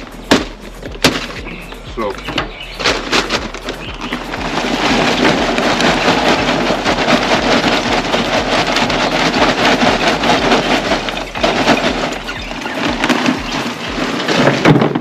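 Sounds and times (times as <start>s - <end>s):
charcoal pouring into metal grill: 3.3s - 15.0s.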